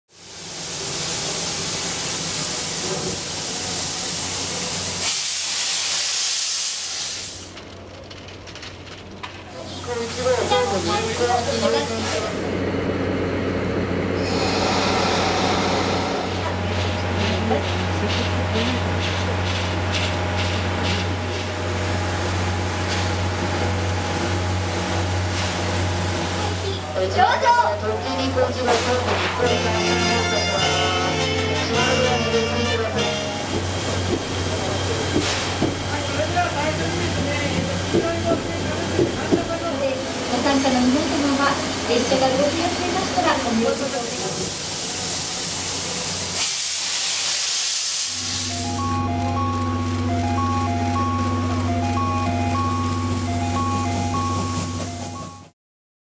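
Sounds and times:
steam venting with loud hiss: 0.1s - 7.6s, 14.2s - 16.6s, 33.4s - 48.7s
steam locomotive hum: 0.1s - 55.5s.

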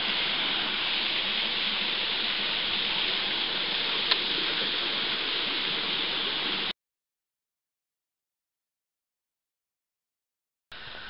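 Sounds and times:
waterfall splashing on rock: 0.0s - 6.7s.

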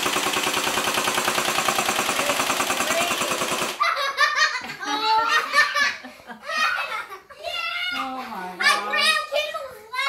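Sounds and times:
toy blaster machine-gun effect: 0.0s - 3.8s
excited voices: 2.8s - 10.0s
people laughing: 3.8s - 8.4s.

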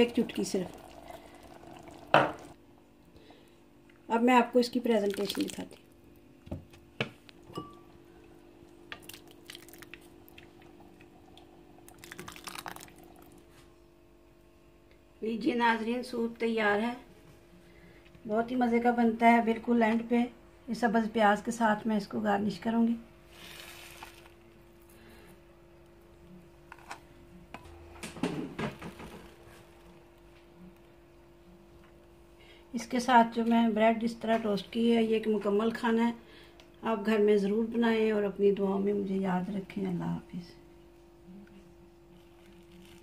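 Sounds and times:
steady low hum: 0.0s - 43.0s
ceramic bowls and spoons clinking: 7.5s - 8.0s.

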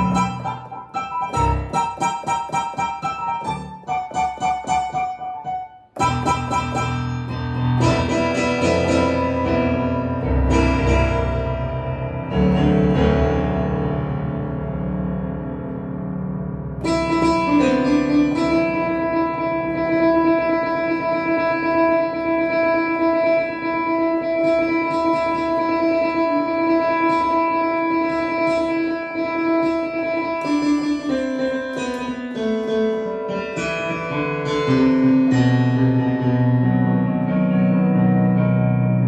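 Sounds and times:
digital keyboard playing: 0.0s - 11.6s.

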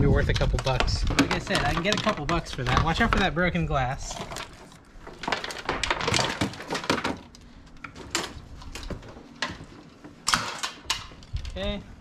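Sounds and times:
household items clattering in a box: 0.3s - 3.3s, 4.0s - 7.3s.

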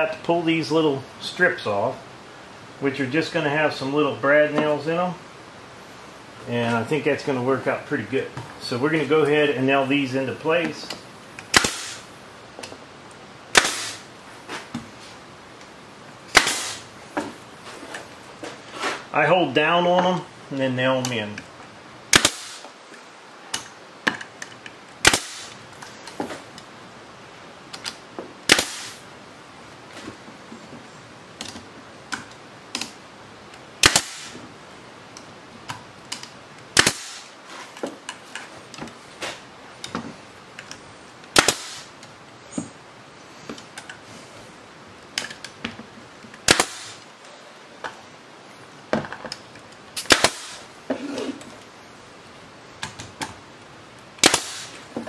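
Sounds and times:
nail gun firing into wood: 11.5s - 12.0s, 13.5s - 14.0s, 16.3s - 16.9s, 22.1s - 22.7s, 25.0s - 25.6s, 28.5s - 29.0s, 33.8s - 34.4s, 36.8s - 37.3s, 41.3s - 41.9s, 46.4s - 47.0s, 50.0s - 50.7s, 54.2s - 54.8s
small clicks and knocks: 31.4s - 33.6s.

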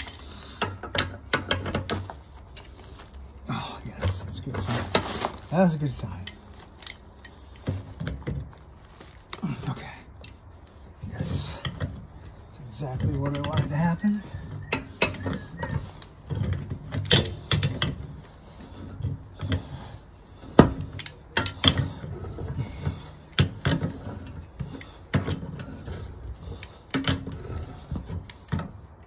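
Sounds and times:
pipe wrench clanking on pipe: 0.0s - 2.8s, 12.7s - 18.1s, 20.5s - 28.7s.

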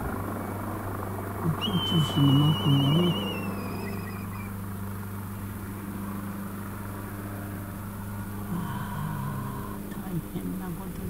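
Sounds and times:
low engine hum: 0.0s - 11.0s
faint higher tone: 1.5s - 4.5s.

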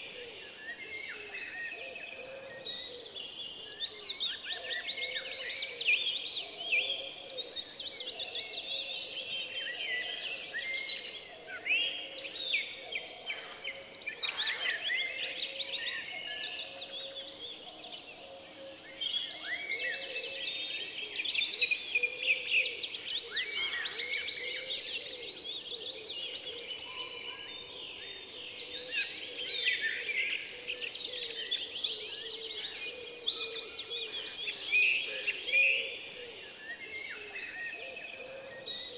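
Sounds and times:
small birds chirping: 0.0s - 38.9s.

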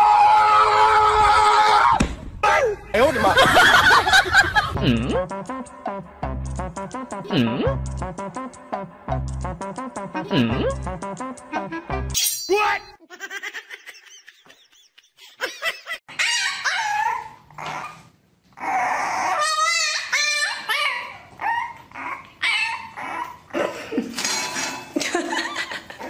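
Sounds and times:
puppy yapping and yelping: 16.1s - 23.5s.

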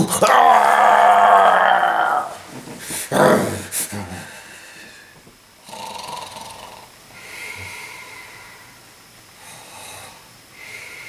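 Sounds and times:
man mock snoring: 0.0s - 2.3s, 3.1s - 4.3s, 5.6s - 6.9s.

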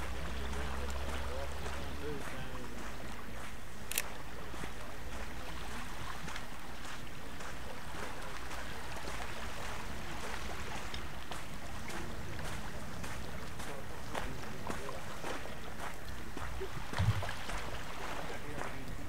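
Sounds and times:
water noise: 0.0s - 19.0s
wind: 0.0s - 19.0s
sharp click: 3.9s - 4.1s.

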